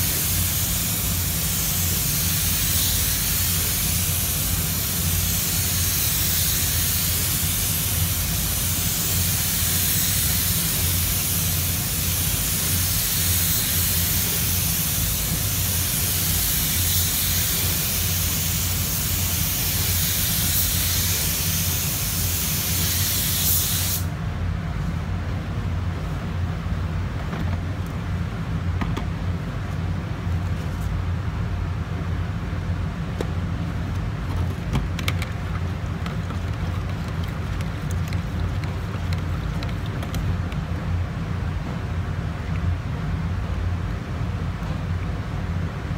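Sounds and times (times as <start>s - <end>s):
paint spray gun hissing: 0.0s - 24.1s
steady low hum: 0.0s - 45.9s.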